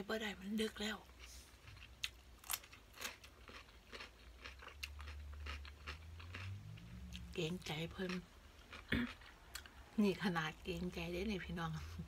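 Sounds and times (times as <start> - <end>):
person chewing crunchy food: 1.1 - 9.8.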